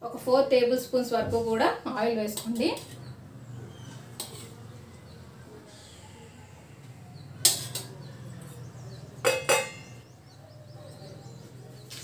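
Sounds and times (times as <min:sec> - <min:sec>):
kitchen utensils clinking: 0:04.1 - 0:04.7, 0:07.4 - 0:10.0.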